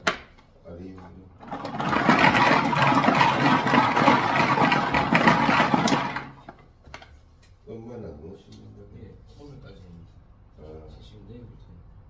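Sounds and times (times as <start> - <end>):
lottery balls clattering in drum: 1.4 - 6.6.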